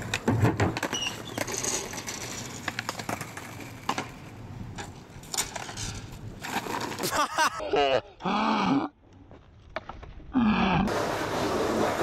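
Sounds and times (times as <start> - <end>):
skateboard thud on wooden ramp: 0.1 - 0.9.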